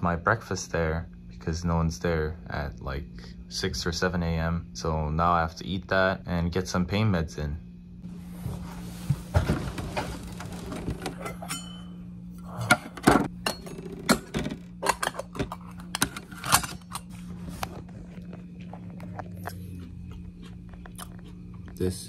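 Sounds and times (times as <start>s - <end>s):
steady low hum: 0.0s - 22.0s
metal bowls and lids clinking: 11.0s - 12.1s, 12.7s - 17.1s.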